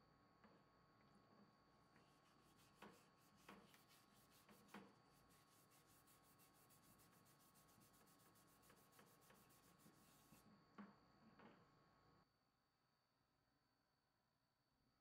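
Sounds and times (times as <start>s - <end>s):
faint scrubbing of wood: 2.0s - 10.5s.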